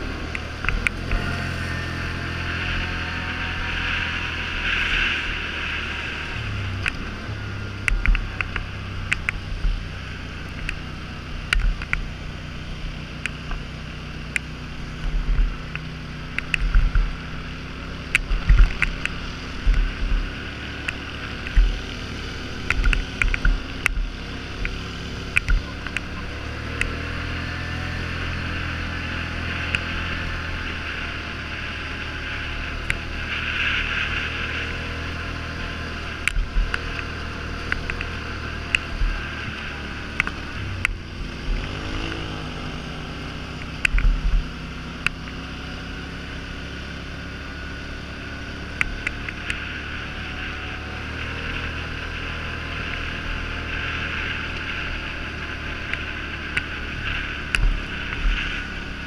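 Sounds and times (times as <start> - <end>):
atv engine running: 0.0 - 59.0
wind noise: 12.9 - 46.2.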